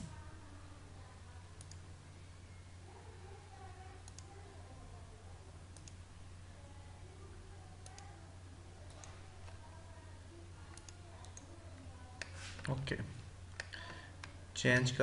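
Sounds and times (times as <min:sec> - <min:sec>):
low electrical hum: 0:00.0 - 0:15.0
computer mouse clicking: 0:01.6 - 0:01.8, 0:04.0 - 0:04.3, 0:05.8 - 0:06.0, 0:08.9 - 0:09.6, 0:10.7 - 0:11.5.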